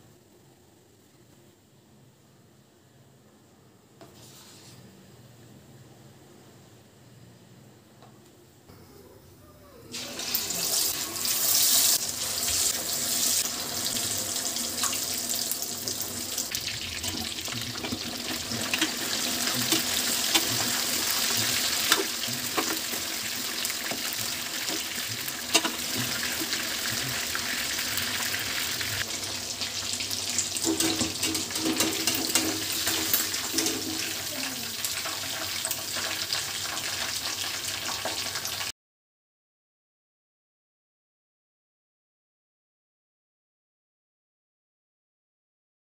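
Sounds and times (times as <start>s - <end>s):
chicken sizzling in hot oil: 9.9s - 38.7s.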